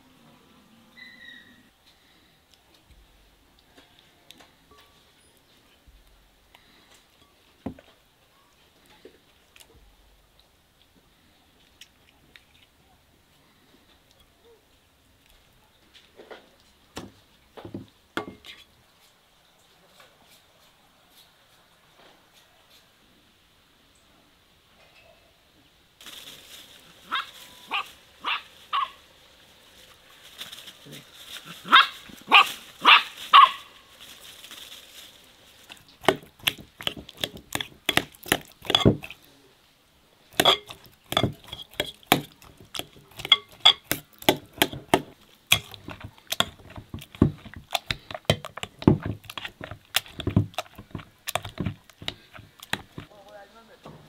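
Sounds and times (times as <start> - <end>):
dog barking: 27.1 - 29.0, 31.6 - 33.7
potato masher mashing against glass: 35.7 - 39.2, 40.4 - 53.1
knife cutting fruit in glass bowl: 36.0 - 39.2, 40.4 - 53.1.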